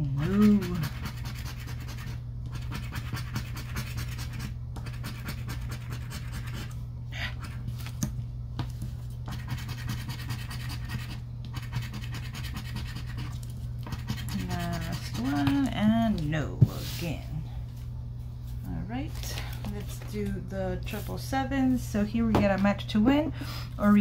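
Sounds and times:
scratching lottery ticket: 0.1 - 6.8, 9.3 - 15.7.

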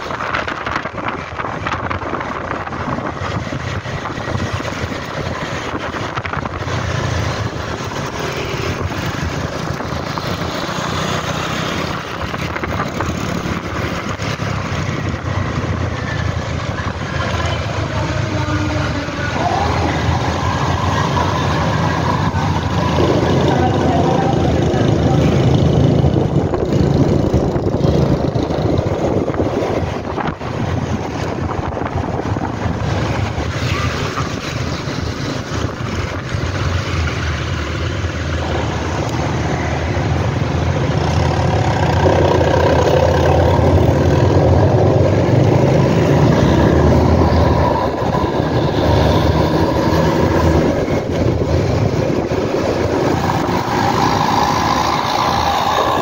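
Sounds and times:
bus diesel engine running: 0.0 - 56.0
motor scooter engine: 40.5 - 56.0.

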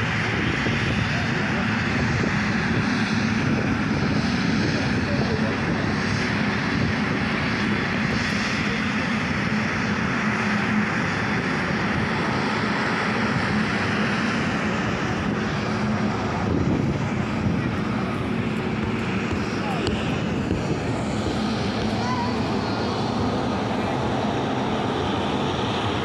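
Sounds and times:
jet engines roaring: 0.0 - 26.0.

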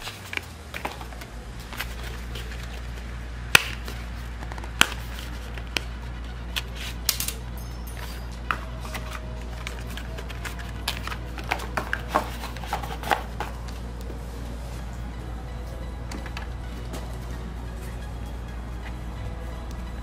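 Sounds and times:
paper and cardboard rustling: 0.0 - 3.1, 3.8 - 7.1, 8.0 - 14.9
steady low hum: 0.0 - 20.0.

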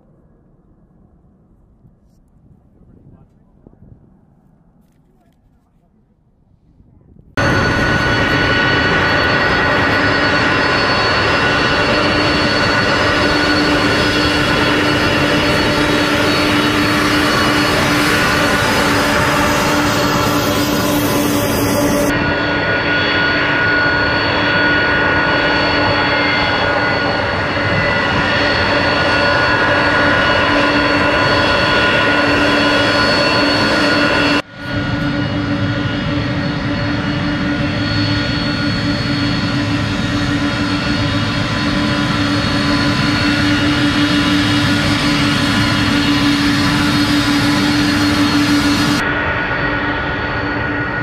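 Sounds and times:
jet engines running: 7.2 - 51.0.

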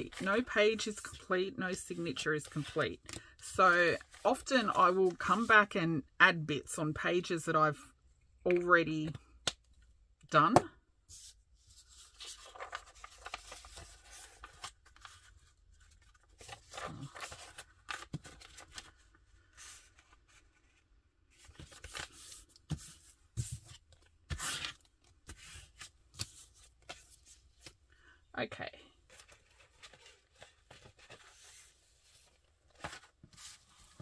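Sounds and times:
paper rustling and crackling: 11.7 - 27.7, 29.1 - 34.0.

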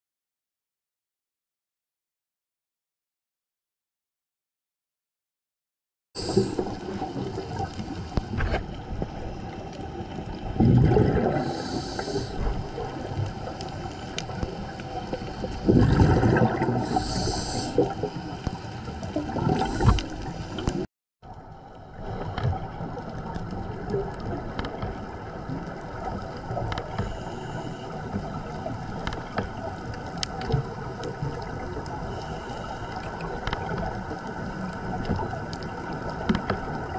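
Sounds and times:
regulator inhale hiss: 6.2 - 7.0, 11.3 - 15.7, 16.8 - 18.7, 19.6 - 20.9, 26.8 - 28.6, 32.0 - 33.4
exhaled bubbles rumbling: 6.2 - 36.9
underwater noise: 6.2 - 36.9
faint clicks: 12.0 - 15.6, 22.3 - 27.2, 28.1 - 36.9.

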